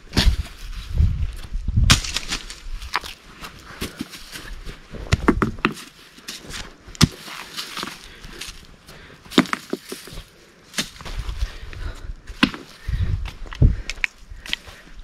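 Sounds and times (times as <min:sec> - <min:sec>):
scuffing on dry earth: 0:00.0 - 0:15.0
rocks knocking together: 0:01.8 - 0:08.6, 0:09.2 - 0:11.3, 0:12.3 - 0:14.6.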